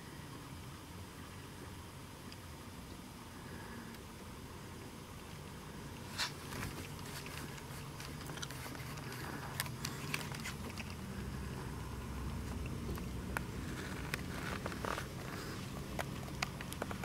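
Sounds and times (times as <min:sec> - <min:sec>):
low steady hum: 0:00.0 - 0:17.0
faint clicks and knocks: 0:12.2 - 0:17.0.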